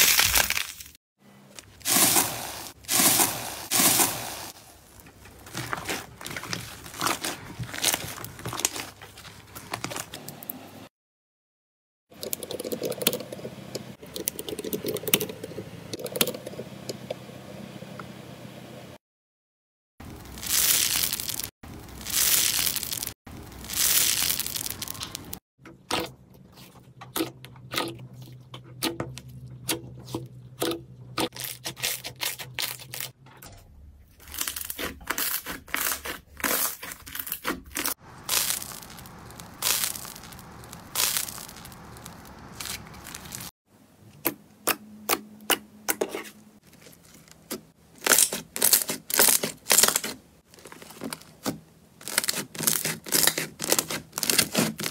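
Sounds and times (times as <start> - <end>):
slime squishes: 1.6 - 10.1, 20.2 - 33.1, 34.2 - 43.5
slime crackling and popping: 20.1 - 25.4, 34.3 - 43.5, 52.0 - 54.9.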